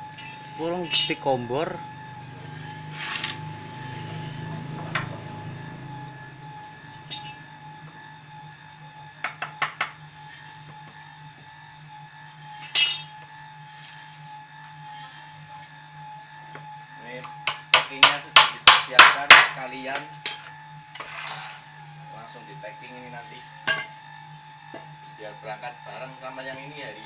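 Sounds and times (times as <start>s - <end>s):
popcorn machine motor hum: 0.0s - 27.0s
sharp metallic clinks: 12.7s - 13.1s.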